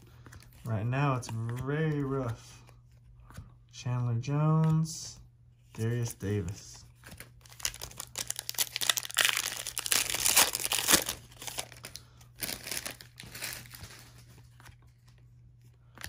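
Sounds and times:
plastic wrapper crinkling and tearing: 0:07.1 - 0:14.2.

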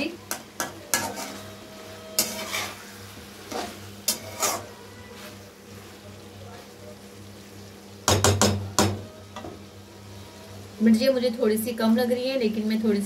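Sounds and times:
metal spatula scraping pan: 0:00.6 - 0:05.4.

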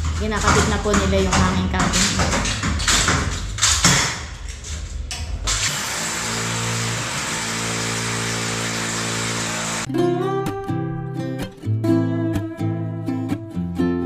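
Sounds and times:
electric drill boring: 0:05.4 - 0:09.9.

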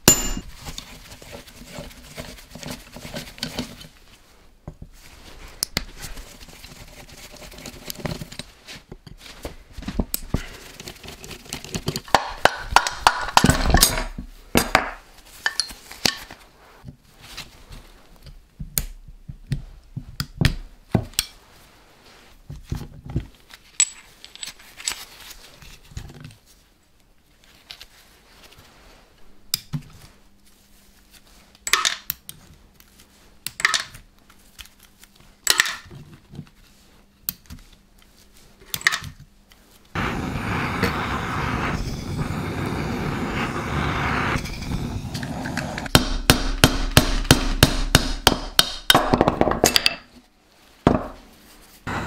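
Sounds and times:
metal tools clinking: 0:00.0 - 0:00.5.

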